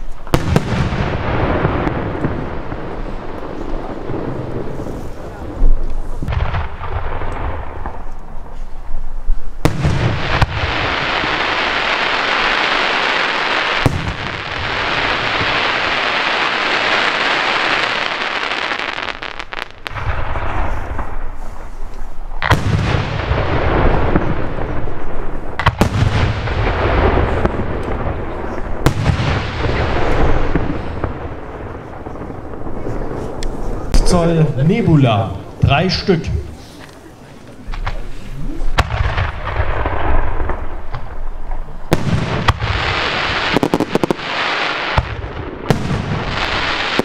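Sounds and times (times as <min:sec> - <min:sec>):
firework hiss: 0:09.6 - 0:34.0, 0:41.9 - 0:47.0.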